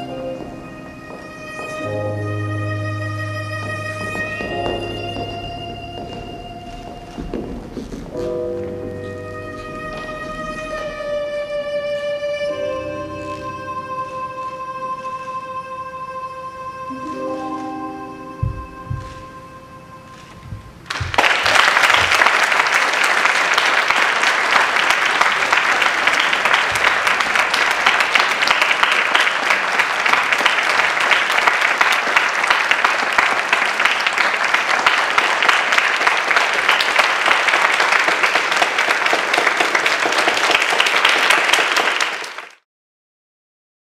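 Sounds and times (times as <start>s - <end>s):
audience applauding: 20.8s - 42.6s.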